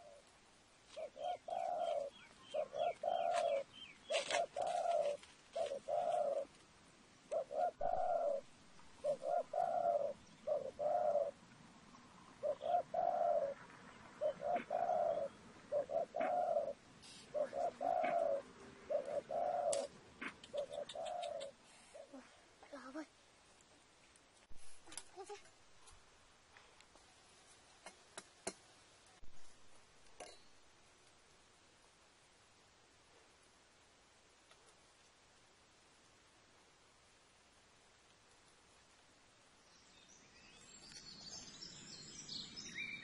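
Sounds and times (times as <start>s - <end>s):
dove cooing: 0.0s - 0.3s, 0.9s - 6.6s, 7.3s - 11.4s, 12.4s - 22.9s
faint scratching and rustling: 2.9s - 6.7s, 23.5s - 29.6s.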